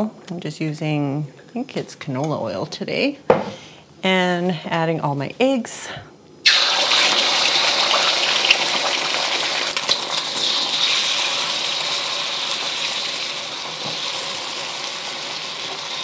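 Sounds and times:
eggs sizzling in oil: 0:06.4 - 0:16.0.

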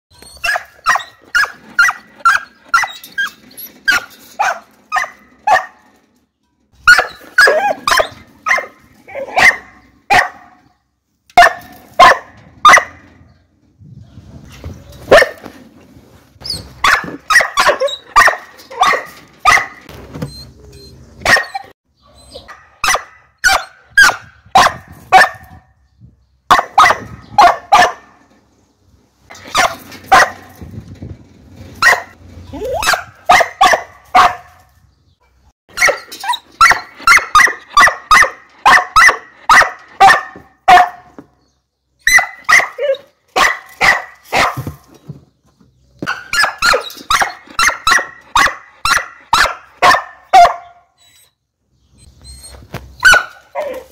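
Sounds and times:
small dog barking: 0:06.9 - 0:10.5, 0:11.4 - 0:12.9, 0:15.0 - 0:15.5, 0:16.8 - 0:19.8, 0:21.2 - 0:21.7, 0:22.4 - 0:25.5, 0:26.5 - 0:28.1, 0:32.8 - 0:34.6, 0:35.8 - 0:41.1, 0:42.1 - 0:44.7, 0:46.1 - 0:50.8, 0:53.0 - 0:53.9.

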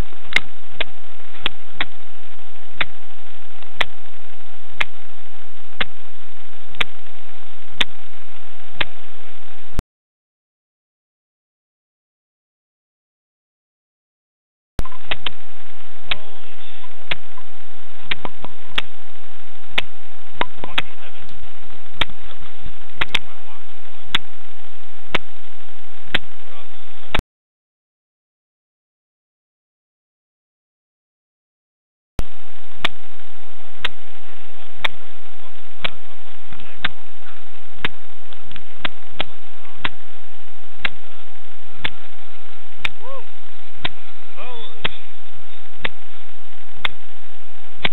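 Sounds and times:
faint steady whine: 0:00.0 - 0:09.8, 0:14.8 - 0:27.2, 0:32.2 - 0:47.9
microphone hiss: 0:00.0 - 0:09.8, 0:14.8 - 0:27.2, 0:32.2 - 0:47.9
sharp ticks: 0:04.8 - 0:05.0, 0:14.8 - 0:15.4, 0:22.0 - 0:23.3, 0:32.8 - 0:33.0, 0:40.8 - 0:41.0
clicks: 0:06.7 - 0:07.0, 0:08.8 - 0:09.0, 0:14.8 - 0:15.4, 0:19.8 - 0:23.3.

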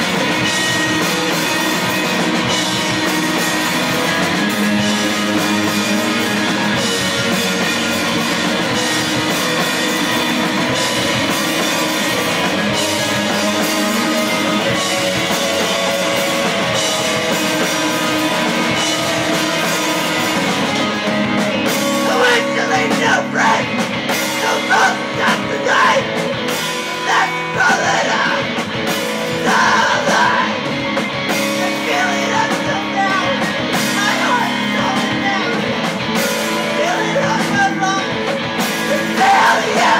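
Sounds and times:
live rock band playing: 0:00.0 - 0:39.9
person singing: 0:10.8 - 0:28.6, 0:29.3 - 0:30.8, 0:31.4 - 0:35.9, 0:36.6 - 0:39.9.

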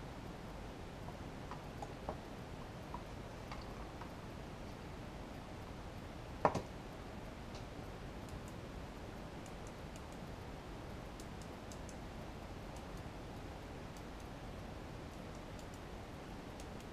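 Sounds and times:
faint light clicks: 0:15.1 - 0:15.9, 0:16.6 - 0:16.9.

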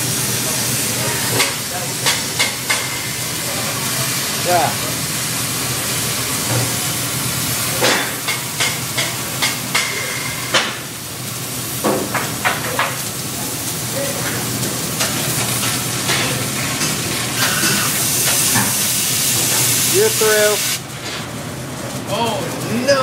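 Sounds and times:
cutting torch hissing: 0:12.8 - 0:20.8.

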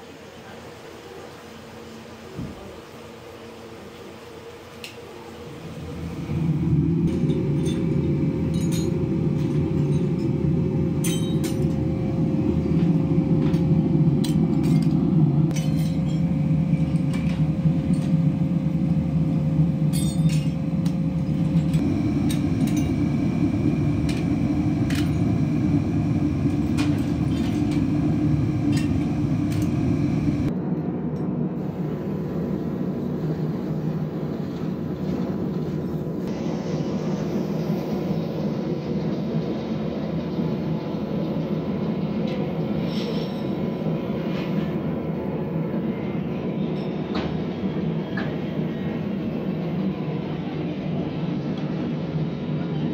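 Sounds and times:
furnace roaring: 0:00.0 - 0:52.9
steady machine hum: 0:03.1 - 0:42.8.

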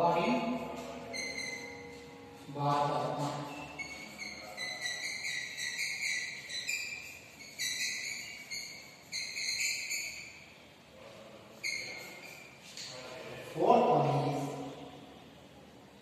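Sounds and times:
chalk squeaking on blackboard: 0:00.2 - 0:10.7, 0:11.5 - 0:12.9.

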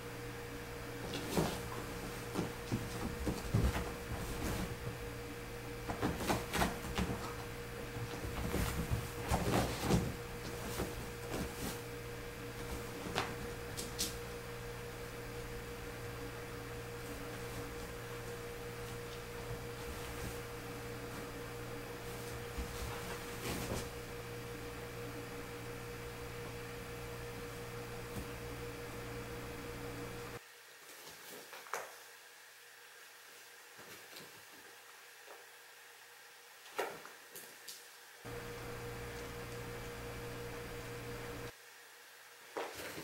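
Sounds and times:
steady low hum: 0:00.0 - 0:30.4, 0:38.2 - 0:41.6
kittens scuffling: 0:00.8 - 0:31.7
soft thumps and rustles of paws: 0:01.0 - 0:05.1, 0:05.8 - 0:11.9, 0:12.5 - 0:14.1, 0:17.0 - 0:20.5, 0:21.1 - 0:24.2.

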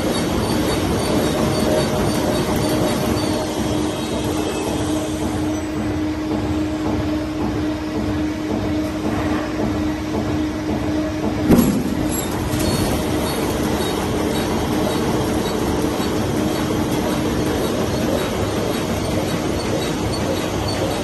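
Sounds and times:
paper cutting machine rumbling: 0:00.0 - 0:06.7, 0:11.2 - 0:21.0
sharp knock: 0:11.5 - 0:12.2.

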